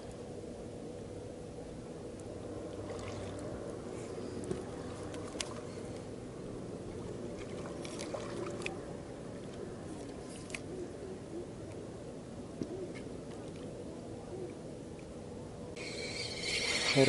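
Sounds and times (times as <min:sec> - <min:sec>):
waves lapping against boat hull: 0:02.7 - 0:06.1, 0:06.8 - 0:08.9.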